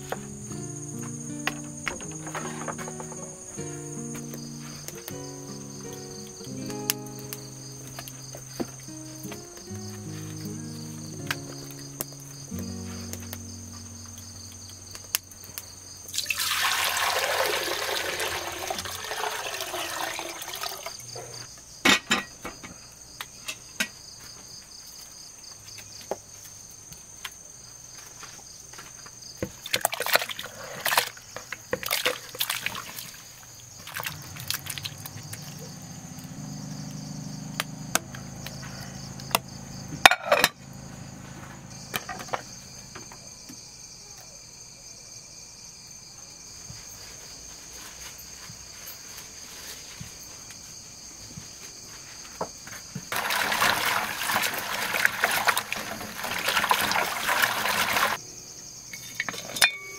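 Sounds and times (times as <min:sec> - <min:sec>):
crickets chirping: 0:00.0 - 0:59.9
water poured into metal pot: 0:16.1 - 0:21.1, 0:29.6 - 0:31.1, 0:31.8 - 0:33.2, 0:33.8 - 0:35.6, 0:53.1 - 0:58.2.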